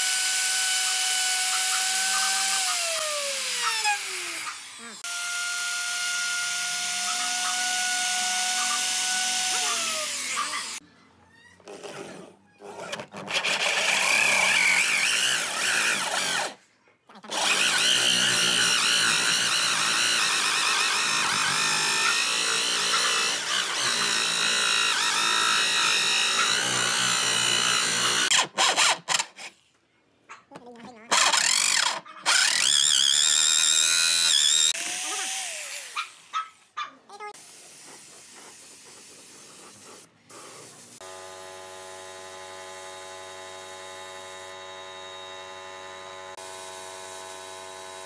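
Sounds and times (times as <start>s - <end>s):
electric router whining: 0.0s - 10.8s, 17.3s - 28.3s, 31.2s - 36.0s, 41.0s - 48.0s
power drill boring through wood: 0.0s - 10.8s, 12.9s - 16.6s, 17.2s - 29.5s, 31.1s - 36.4s, 41.0s - 48.0s.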